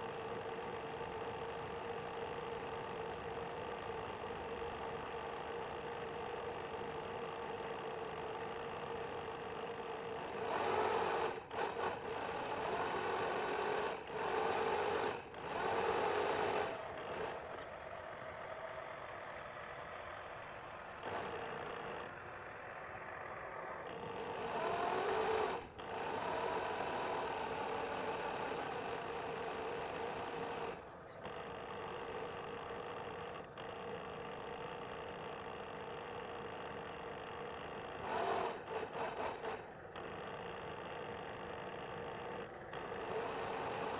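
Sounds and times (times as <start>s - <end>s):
electric motor whining: 7.5s - 17.9s, 23.8s - 43.9s.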